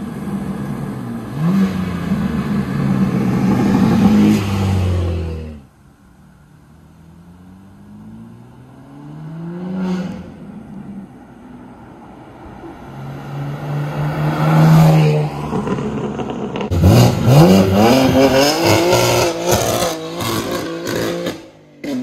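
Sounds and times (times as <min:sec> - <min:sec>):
car accelerating hard with upshifts: 0:07.0 - 0:11.0, 0:12.7 - 0:22.0
car passing by at speed: 0:07.2 - 0:21.4.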